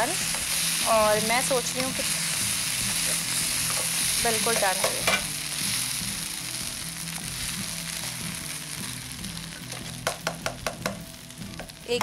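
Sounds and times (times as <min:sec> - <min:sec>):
food sizzling in hot oil: 0:00.0 - 0:12.0
soft background music: 0:00.0 - 0:12.0
metal spoon tapping pan: 0:03.7 - 0:05.3, 0:10.0 - 0:11.0.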